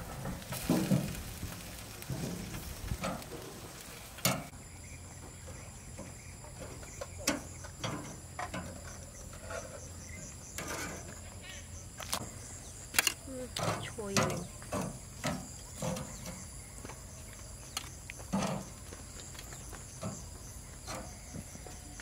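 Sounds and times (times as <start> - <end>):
meat sizzling on a grill: 0.0 - 4.5
insect chirring: 0.5 - 22.0.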